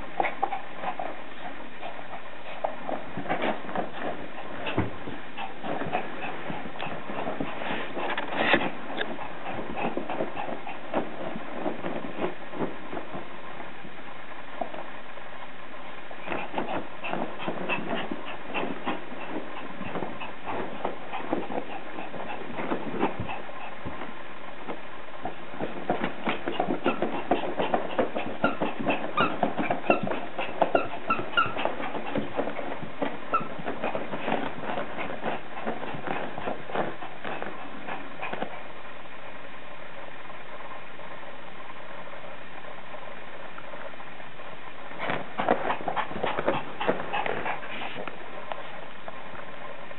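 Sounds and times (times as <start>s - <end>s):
dog paws scratching: 0.0s - 14.0s, 16.2s - 38.8s, 44.9s - 49.2s
dog yipping: 28.2s - 32.2s, 33.3s - 33.7s.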